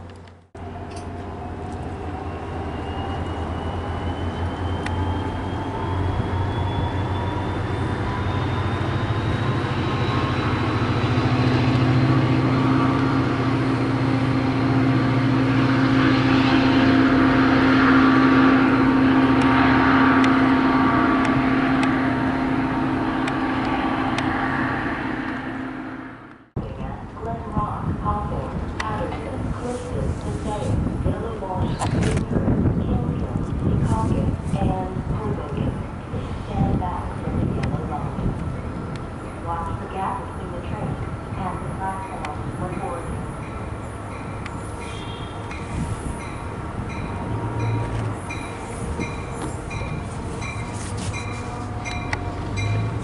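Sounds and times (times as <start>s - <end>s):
train engine hum: 0.0s - 53.0s
wheel and rail noise: 0.0s - 53.0s
rising whine: 0.6s - 26.6s.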